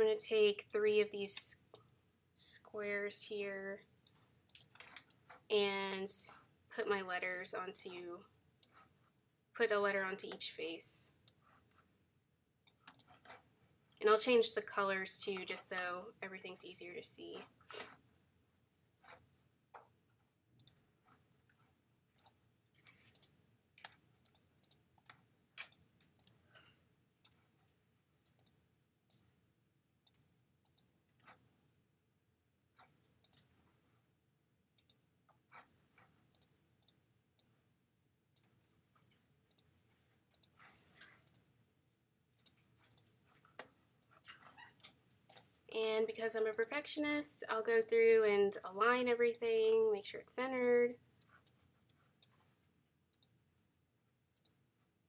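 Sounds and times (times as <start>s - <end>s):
computer mouse clicking: 4.0s - 5.5s, 8.6s - 8.9s, 12.6s - 14.1s, 20.6s - 26.5s, 27.2s - 29.3s, 30.0s - 31.4s, 32.8s - 33.6s, 34.8s - 37.5s, 38.4s - 39.7s, 40.3s - 41.5s, 42.4s - 45.6s, 50.5s - 52.4s, 53.1s - 53.7s, 54.4s - 54.6s.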